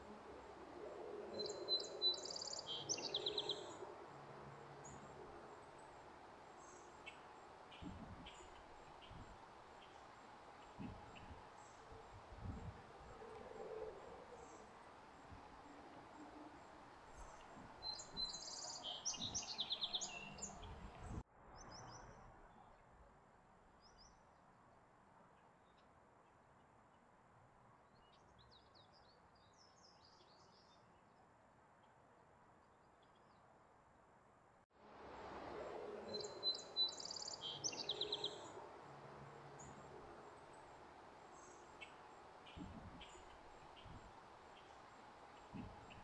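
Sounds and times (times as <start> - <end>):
birds chirping: 0.8 - 21.2, 35.7 - 46.0.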